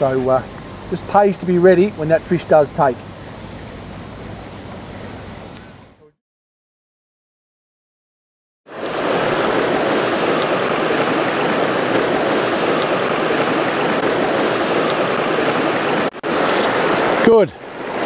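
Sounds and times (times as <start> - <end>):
river rushing over stones: 8.7 - 18.0.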